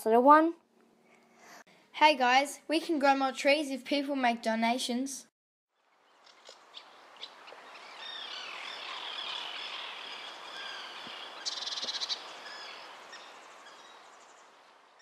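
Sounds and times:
fast rattling bird trill: 6.0s - 14.4s
birds chirping and calling: 6.1s - 15.0s.

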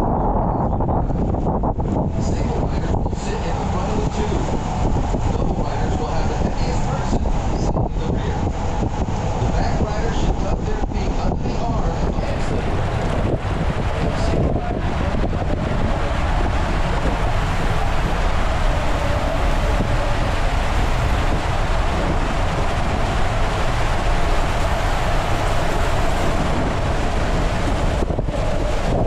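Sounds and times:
inner tube sliding rumble: 0.0s - 29.0s
wind buffeting microphone: 0.0s - 29.0s
rushing water: 1.8s - 29.0s.

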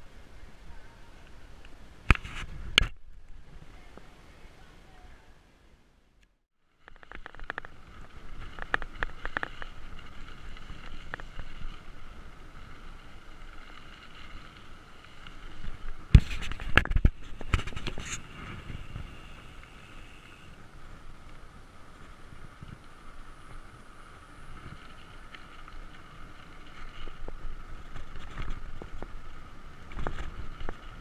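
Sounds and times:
wind noise: 0.0s - 5.4s, 6.8s - 31.0s
bike tyres on dirt road: 6.5s - 31.0s
bike rattling clicks: 6.9s - 11.7s.

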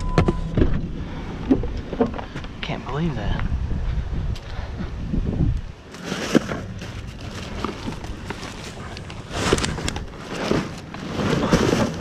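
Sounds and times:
crackling and knocking in dumpster: 5.9s - 12.0s
plastic bags rustling and crinkling: 5.9s - 12.0s.

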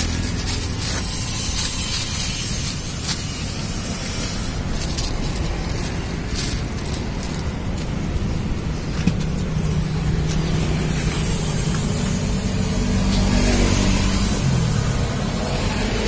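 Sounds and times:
engine humming: 0.0s - 16.0s.

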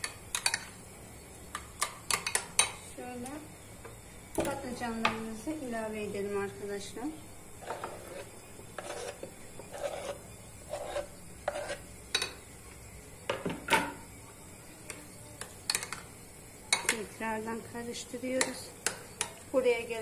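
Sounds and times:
spoon scraping wooden board: 7.6s - 11.9s.

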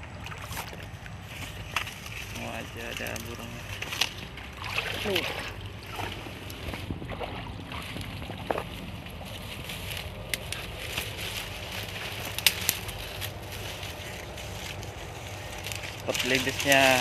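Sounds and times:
low steady rumble: 0.0s - 17.0s
footsteps in dry leaves: 1.2s - 4.4s, 7.8s - 17.0s
twigs snapping: 1.5s - 4.9s, 9.4s - 17.0s.

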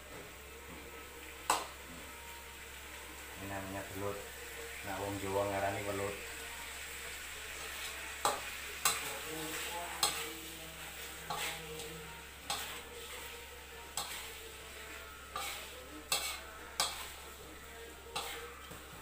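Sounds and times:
frying sizzle: 0.0s - 19.0s
metal spatula clacking on wok: 10.0s - 10.2s, 15.4s - 17.1s.

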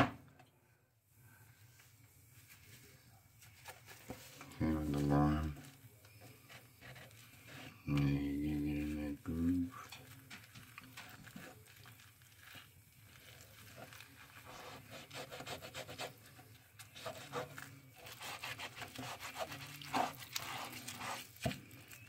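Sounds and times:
fingers scrubbing grill pan: 9.7s - 22.0s.

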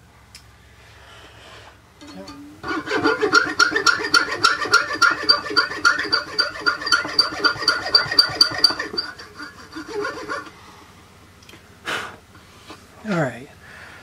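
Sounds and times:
file rasping with squeaky ring: 2.0s - 10.6s.

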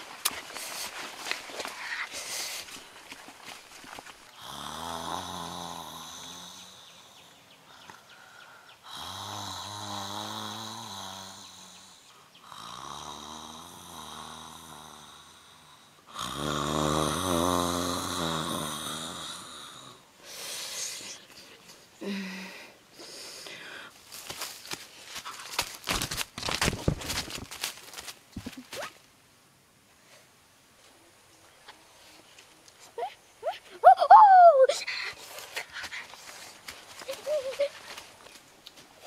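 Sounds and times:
man snoring: 4.4s - 6.8s, 8.9s - 11.8s, 12.4s - 20.0s.

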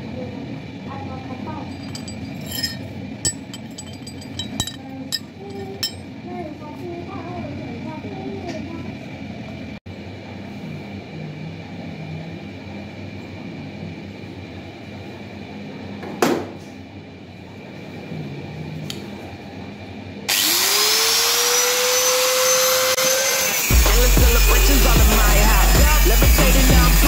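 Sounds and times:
angle grinder whine: 1.7s - 6.0s, 20.3s - 27.0s
handling knocks: 1.7s - 6.0s
music with heavy bass beat: 23.7s - 27.0s.

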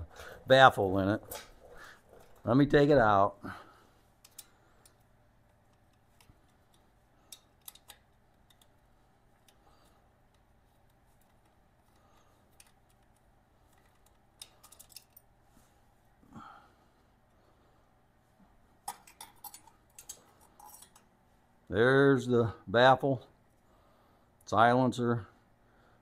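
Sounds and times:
small metal clicks and taps: 4.2s - 5.0s, 5.7s - 8.8s.

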